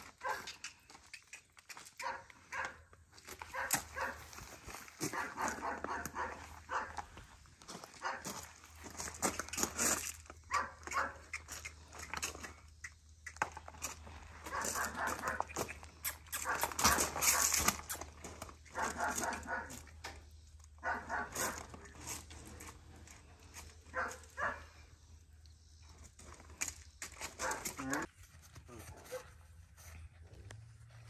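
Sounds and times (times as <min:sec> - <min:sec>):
dog barking and yipping: 0:00.2 - 0:00.6, 0:02.0 - 0:02.8, 0:03.4 - 0:04.3, 0:05.0 - 0:07.0, 0:08.0 - 0:08.3, 0:10.5 - 0:11.3, 0:14.5 - 0:15.5, 0:16.3 - 0:18.0, 0:18.7 - 0:19.9, 0:20.8 - 0:21.7, 0:23.9 - 0:24.7, 0:27.4 - 0:28.1.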